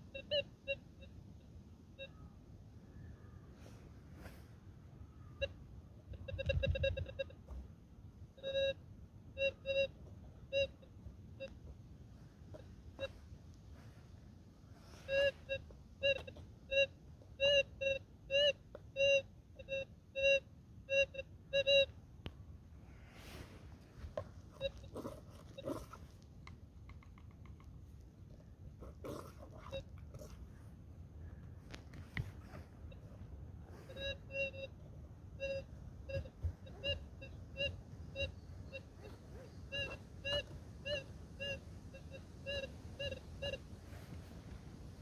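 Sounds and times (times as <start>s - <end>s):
metal detector beeps: 0.0s - 2.3s, 5.3s - 7.6s, 8.4s - 8.8s, 9.4s - 11.6s, 12.5s - 13.2s, 14.8s - 21.9s, 24.5s - 25.9s, 29.1s - 30.0s, 32.0s - 44.1s.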